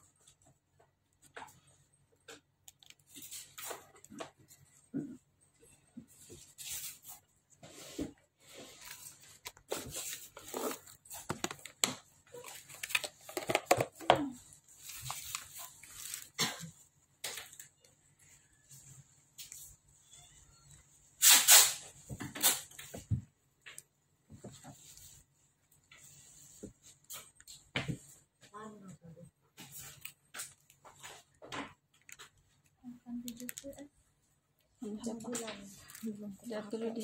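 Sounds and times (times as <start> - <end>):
plastic packaging crinkling: 8.8 - 14.0, 14.7 - 16.4.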